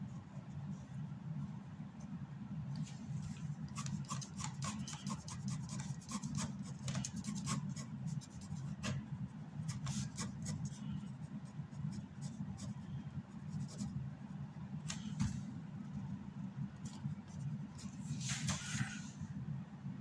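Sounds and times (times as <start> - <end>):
pen scratching on paper: 3.8 - 9.0, 9.7 - 12.8.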